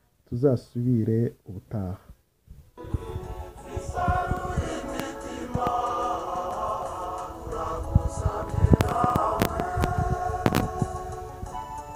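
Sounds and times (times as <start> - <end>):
soft low thumps: 2.5 - 5.8
choir singing held chords: 2.8 - 11.9.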